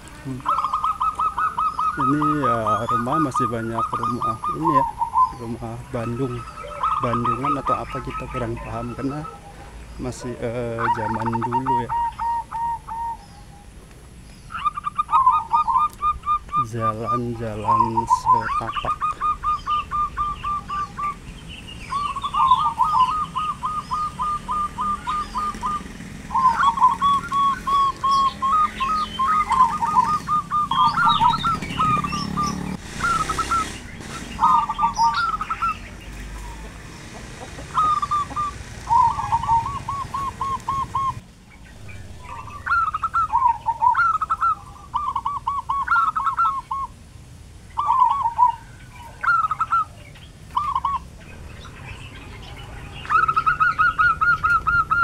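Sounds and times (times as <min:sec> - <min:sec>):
doves cooing: 0:00.0 - 0:47.0, 0:47.8 - 0:55.0
small birds chirping faintly: 0:00.0 - 0:55.0
rush of noise: 0:30.3 - 0:34.9, 0:40.8 - 0:44.9, 0:51.0 - 0:54.2.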